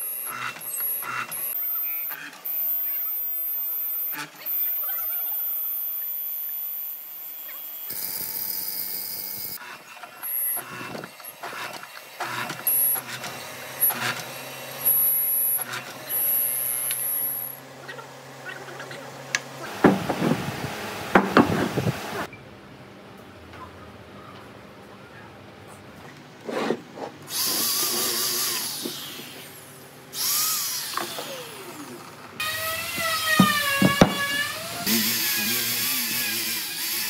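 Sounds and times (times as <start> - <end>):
mortiser motor running: 7.9 - 17.6, 30.2 - 37.0
sharp knocks: 33.0 - 34.4.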